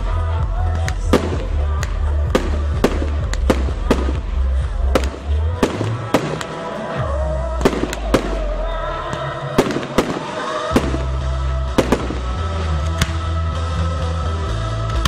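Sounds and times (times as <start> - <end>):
loud music with heavy bass: 0.0 - 15.0
fireworks bangs: 0.8 - 7.0, 7.6 - 13.3.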